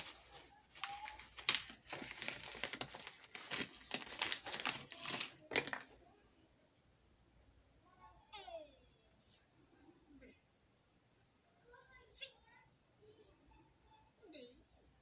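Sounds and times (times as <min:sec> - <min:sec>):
crinkly rustling handling noise: 0:00.0 - 0:05.9
tools tapping and clicking: 0:03.9 - 0:06.0.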